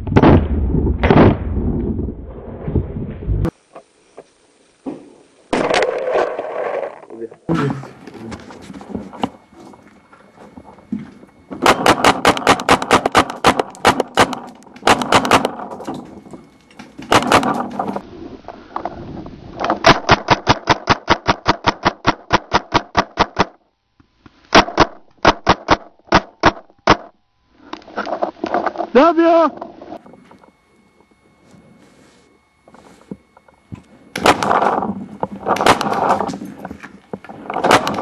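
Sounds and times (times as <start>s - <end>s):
paintball marker firing: 11.6s - 15.6s.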